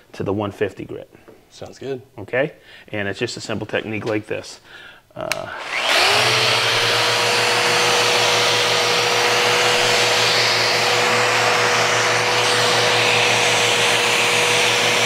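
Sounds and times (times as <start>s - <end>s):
dust extractor drawing air: 5.5s - 15.0s
orbital sander sanding wood: 5.5s - 15.0s.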